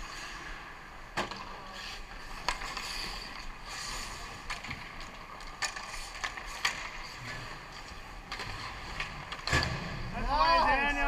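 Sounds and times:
stick clacking puck: 0:01.1 - 0:09.8
skate blades hissing on ice: 0:01.6 - 0:04.5.

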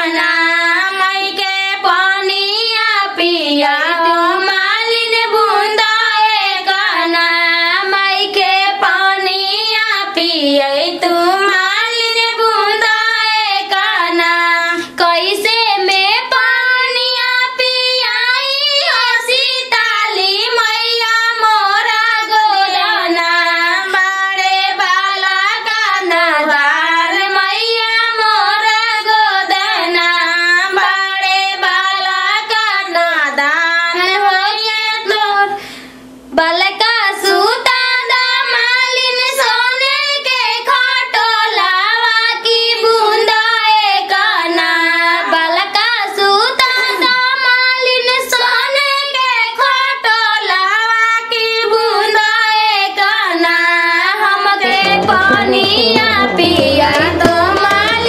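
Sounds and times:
high-pitched voice singing: 0:54.6 - 0:58.0.

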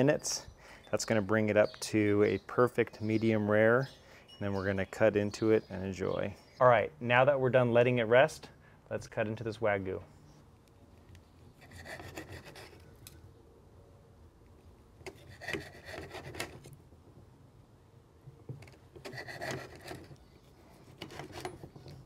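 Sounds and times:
knife sawing through steak: 0:11.6 - 0:12.8.

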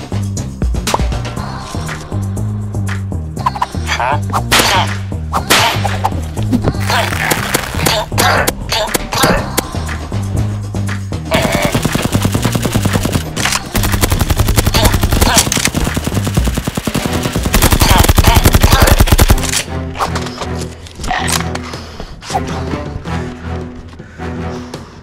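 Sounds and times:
background music with bass line: 0:00.0 - 0:25.0
rapid automatic gunfire: 0:11.4 - 0:19.5.

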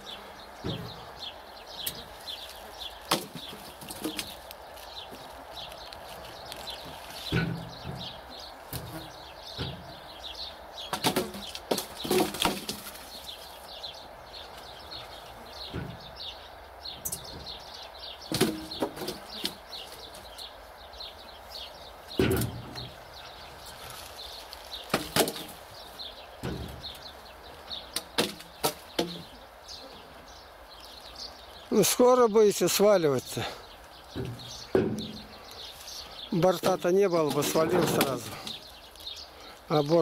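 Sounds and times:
small birds chirping: 0:00.0 - 0:40.0
sudden knocks and thumps: 0:06.8 - 0:10.0, 0:34.1 - 0:35.4.

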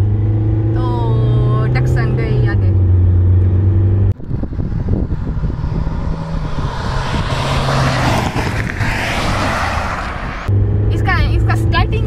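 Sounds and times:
vehicles passing at speed: 0:00.0 - 0:12.0
wind rumble on microphone: 0:04.1 - 0:12.0.

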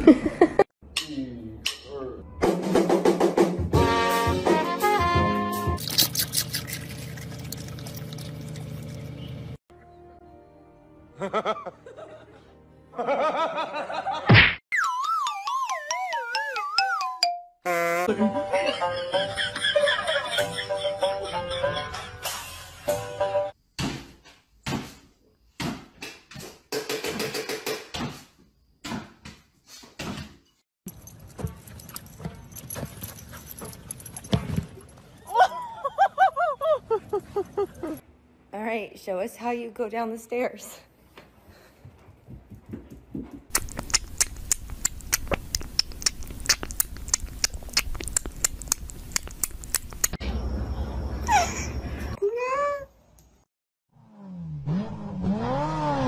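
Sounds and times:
cat chewing clicks: 0:43.6 - 0:50.1.

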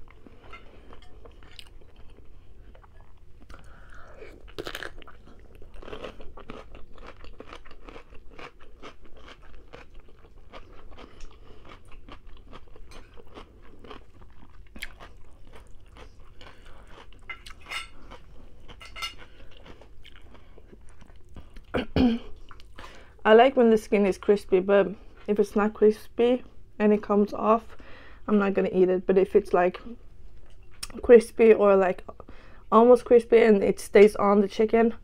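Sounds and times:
chewing chicken with crunching clicks: 0:04.5 - 0:21.7.

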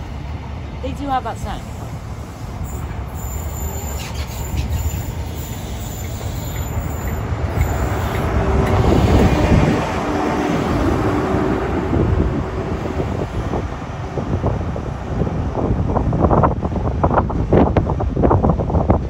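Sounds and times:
train coaches rolling by: 0:00.0 - 0:17.1
diesel engine rumble: 0:00.0 - 0:19.0
wheel squeal: 0:02.6 - 0:09.3.

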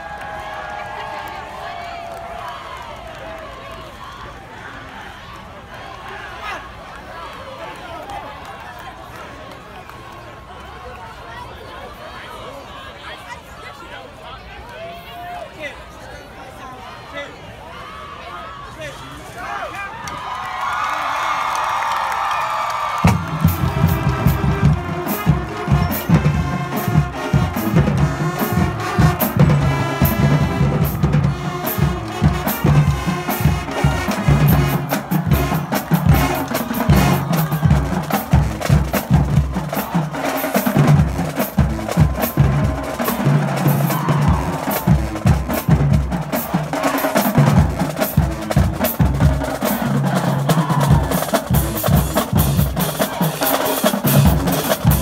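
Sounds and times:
snare and bass drum cadence: 0:23.0 - 0:55.0
low brass notes: 0:23.3 - 0:48.8.

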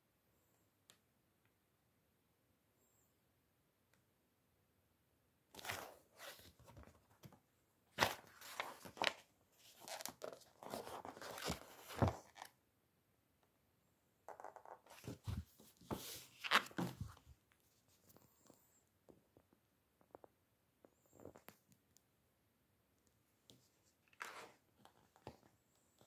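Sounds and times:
book pages rustling: 0:05.6 - 0:12.5, 0:14.7 - 0:18.5, 0:23.5 - 0:26.0.

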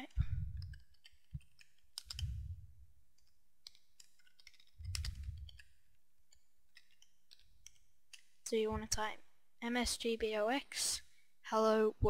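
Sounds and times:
low muffled rumble: 0:00.2 - 0:00.8, 0:02.2 - 0:02.9, 0:04.8 - 0:05.6.

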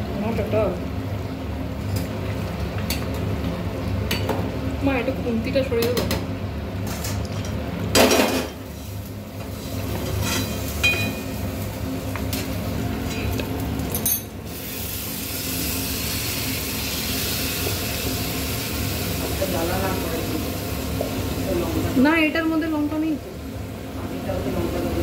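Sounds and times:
meat sizzling in hot pan: 0:14.4 - 0:22.5.

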